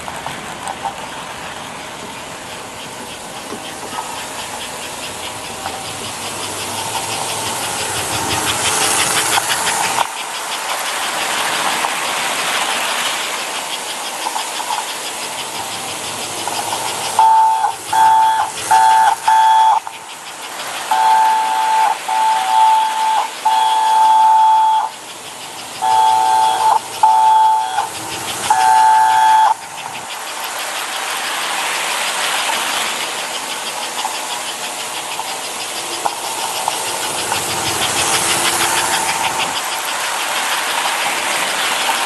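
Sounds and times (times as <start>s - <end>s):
pulsing chuffing hiss: 0.0s - 42.0s
wheels rattling on track: 0.0s - 42.0s
toy train whistle blasts: 16.4s - 30.0s.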